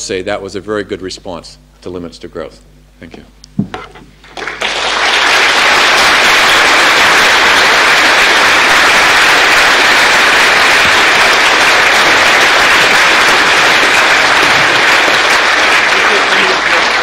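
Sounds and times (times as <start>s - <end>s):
audience applauding: 4.2s - 17.0s.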